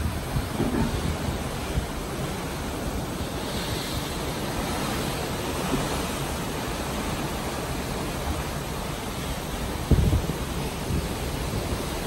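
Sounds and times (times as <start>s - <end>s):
wind rumble on microphone: 0.0s - 5.9s, 9.6s - 12.0s
seawater rushing along ship hull: 0.0s - 12.0s.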